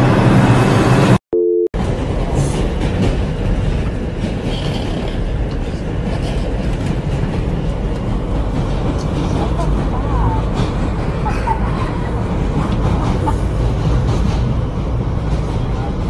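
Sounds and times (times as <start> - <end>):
subway train wheels rumbling: 0.0 - 1.2, 1.8 - 16.0
short beep: 1.3 - 1.7.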